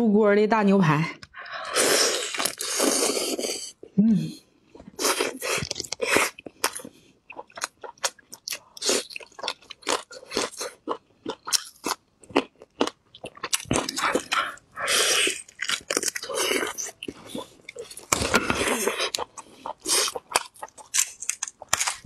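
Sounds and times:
chewing with sharp crunches: 4.7 - 22.0.

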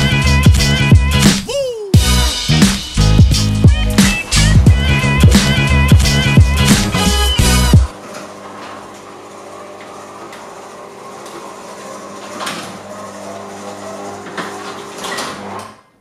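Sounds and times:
intro music: 0.0 - 7.9
garage door opener humming: 2.8 - 16.0.

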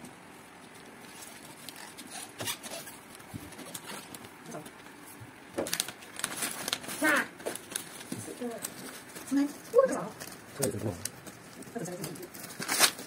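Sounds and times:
paper rustling: 0.6 - 13.0
scissors cutting paper: 7.5 - 13.0.

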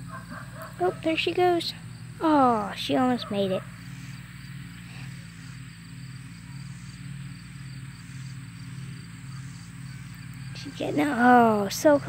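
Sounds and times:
faint outdoor background noise: 0.0 - 12.0
low mechanical hum: 0.0 - 12.0.

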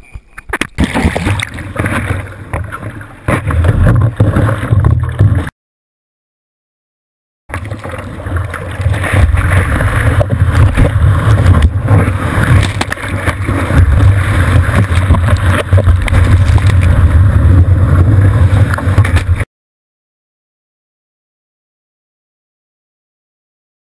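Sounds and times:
churning surf: 7.5 - 19.4.

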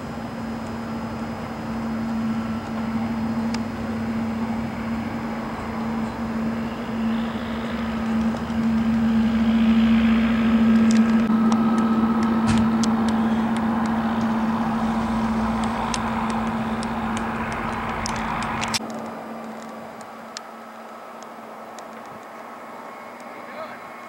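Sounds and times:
engine droning hum: 0.0 - 24.0
sharp clicks: 10.7 - 20.5.

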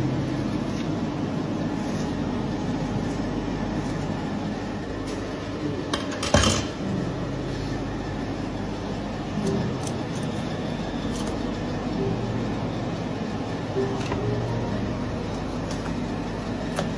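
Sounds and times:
low hum: 6.8 - 16.9.

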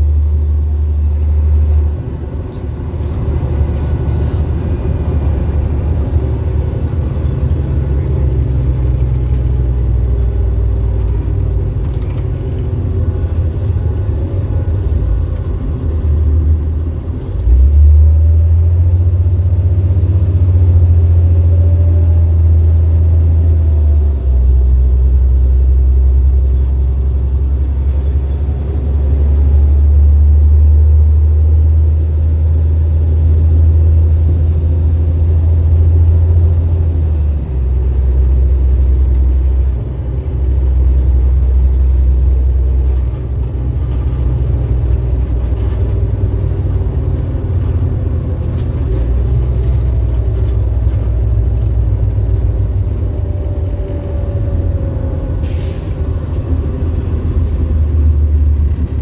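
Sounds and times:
bus diesel engine rumbling: 0.0 - 59.0.

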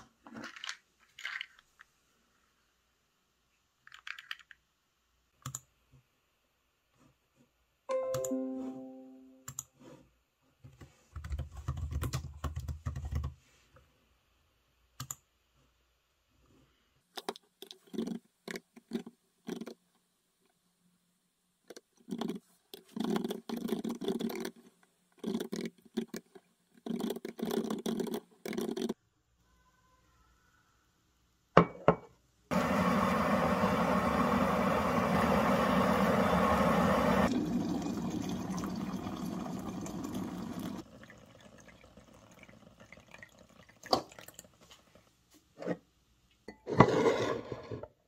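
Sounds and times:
computer keyboard typing: 11.2 - 13.4.

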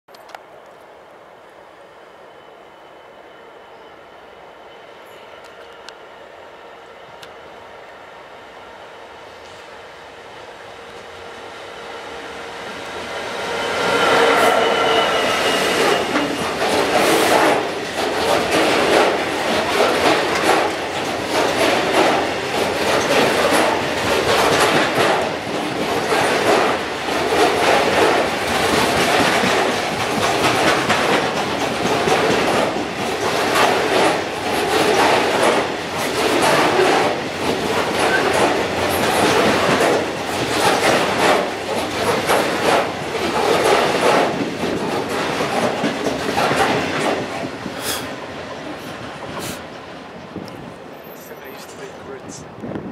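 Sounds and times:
train wheels clattering on rails: 12.7 - 52.9.

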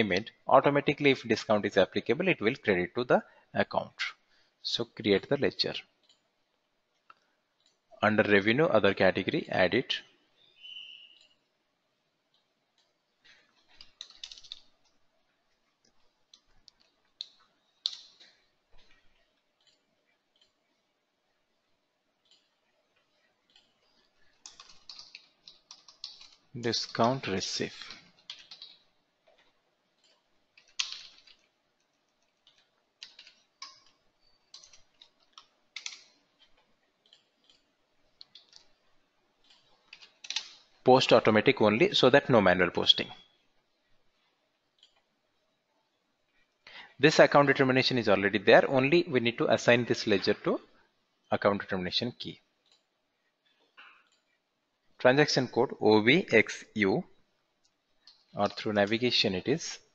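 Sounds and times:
computer keyboard keystrokes: 13.7 - 14.7, 24.4 - 27.2, 27.8 - 28.8, 30.0 - 31.4, 32.4 - 36.1, 39.5 - 40.6.

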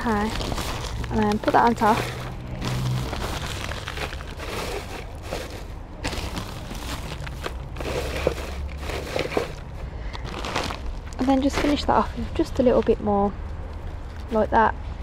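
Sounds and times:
dry hay rustling: 0.0 - 9.6
plastic bag crinkling: 0.0 - 12.9.

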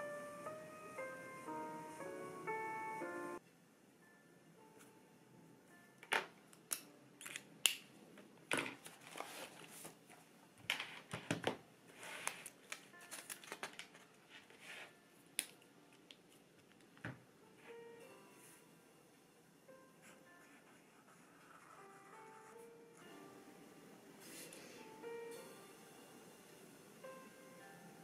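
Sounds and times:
paper rustling: 8.8 - 11.3, 11.9 - 15.0.

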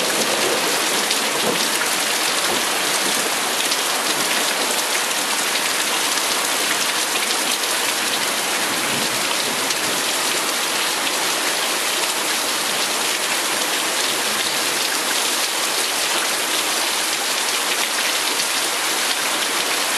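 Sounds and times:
heavy rain pouring: 0.0 - 19.9.

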